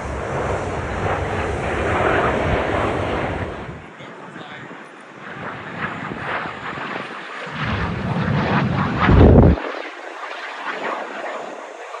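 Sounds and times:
wind buffeting microphone: 0.0 - 4.0, 7.5 - 9.7
jet aircraft flying past: 0.0 - 12.0.

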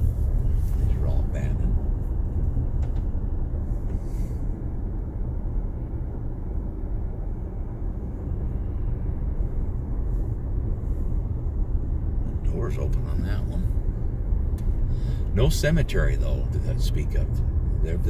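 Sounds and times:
car cabin road rumble on gravel: 0.0 - 5.6, 9.4 - 18.0.

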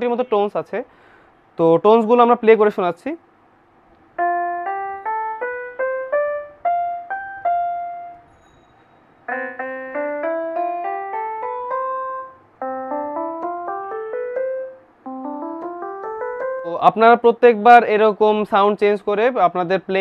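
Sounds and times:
mini keyboard notes: 4.2 - 17.5.

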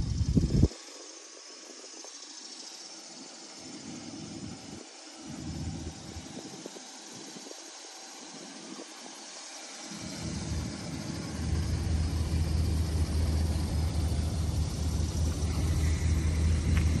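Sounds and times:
outdoor background hiss: 0.0 - 17.0
vehicle engine idling: 3.6 - 17.0.

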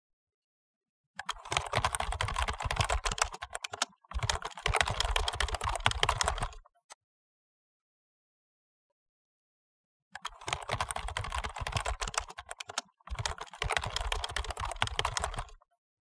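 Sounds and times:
fast typing on keyboard: 1.2 - 6.6, 10.2 - 15.6.

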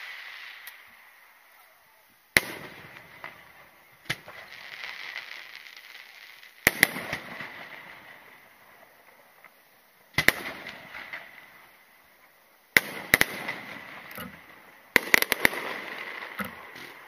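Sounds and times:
firework shells bursting: 0.0 - 1.2, 2.3 - 17.0
firework crackling: 0.0 - 17.0.

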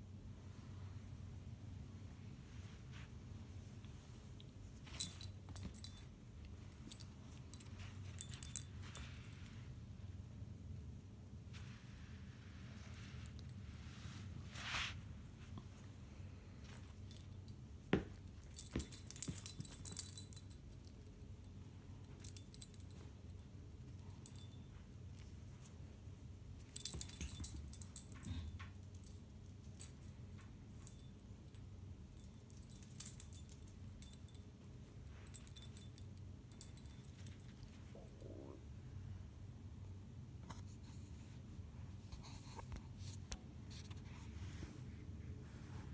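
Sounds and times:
metal tags on collar jingling: 4.6 - 9.6, 16.5 - 25.7, 26.6 - 38.4.

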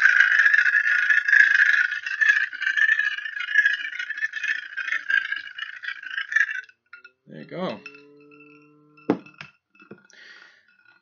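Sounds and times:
magnetic stirrer rattling whir: 0.0 - 6.6.

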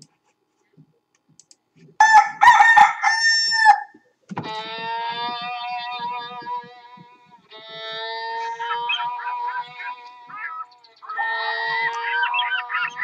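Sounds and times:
loud crowing call: 2.0 - 13.0
distorted guitar music: 7.8 - 13.0.

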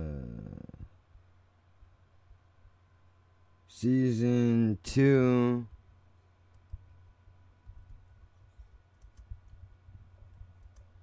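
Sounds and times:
typing on computer keyboard: 8.6 - 9.6, 10.3 - 10.9.

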